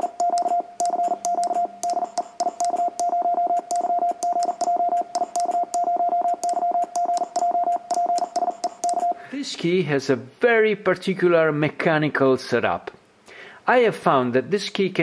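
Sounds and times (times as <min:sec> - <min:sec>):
morse code tone: 0:00.0 - 0:09.2.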